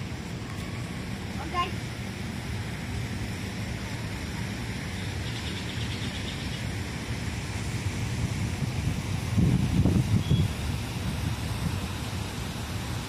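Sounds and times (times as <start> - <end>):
distant city hum: 0.0 - 13.0
wind on microphone: 7.5 - 13.0.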